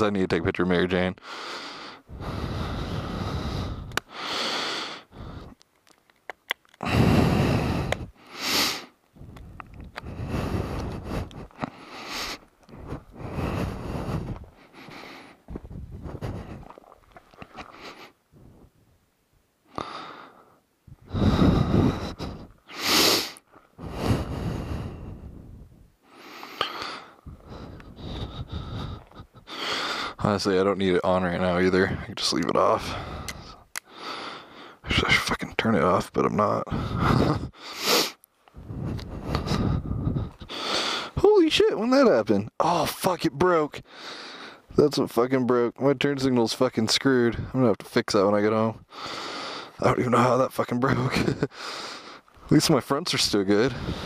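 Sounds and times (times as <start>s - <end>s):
person breathing hard: 1.2s - 5.6s, 6.8s - 18.7s, 19.7s - 30.2s, 32.8s - 34.9s, 36.7s - 41.2s, 43.8s - 44.7s, 48.8s - 49.8s, 51.2s - 52.5s, 53.6s - 54.0s
sharp hissing exhale: 6.8s - 8.9s.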